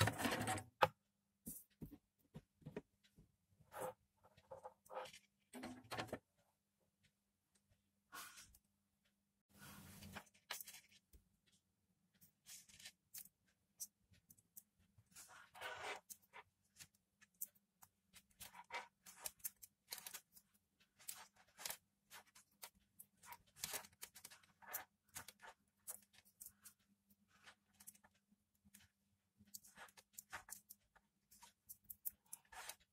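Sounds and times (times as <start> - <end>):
clicks and rustles of wires: 10.0 - 32.9.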